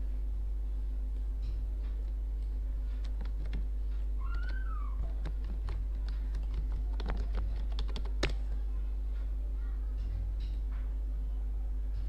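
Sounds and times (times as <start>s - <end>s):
low hum: 0.0s - 12.0s
keyboard key clicks: 4.3s - 8.4s.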